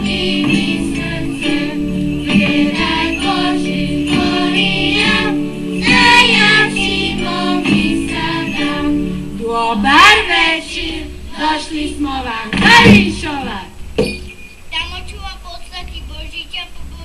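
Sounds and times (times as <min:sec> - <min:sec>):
instrumental accompaniment of held notes: 0:00.0 - 0:11.9
choir singing: 0:00.0 - 0:13.3.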